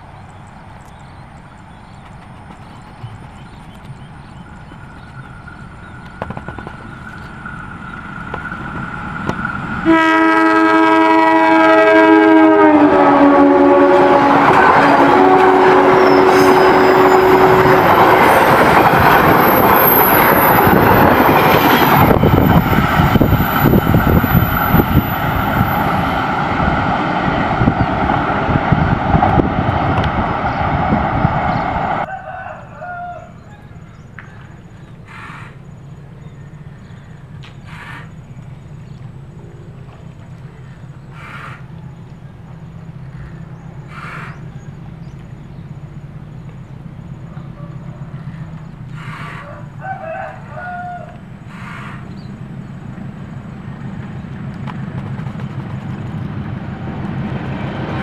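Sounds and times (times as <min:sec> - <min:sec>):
train coaches rumbling and clattering: 0:00.0 - 0:32.1, 0:33.7 - 0:58.0
locomotive horn: 0:09.8 - 0:18.4
high wheel squeal: 0:15.4 - 0:26.1.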